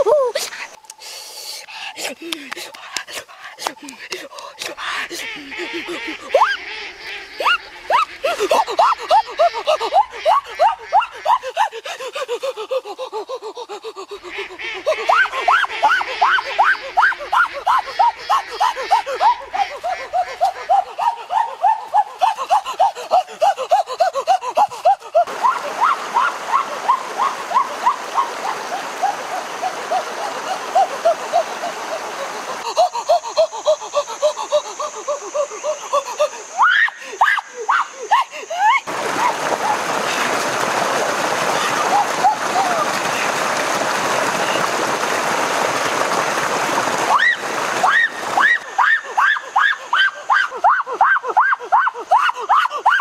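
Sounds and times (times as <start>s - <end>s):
steady hiss: 0.1s - 6.2s
rapid rhythmic laugh-like sound effect: 2.0s - 25.3s.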